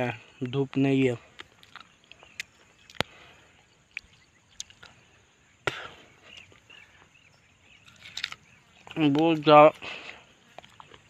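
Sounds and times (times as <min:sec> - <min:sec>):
faint outdoor hush: 0:00.0 - 0:11.0
sharp clicks and crunches: 0:01.3 - 0:03.2, 0:03.9 - 0:05.0, 0:07.8 - 0:09.5
person chewing: 0:01.3 - 0:05.0, 0:07.7 - 0:08.9, 0:10.5 - 0:11.0.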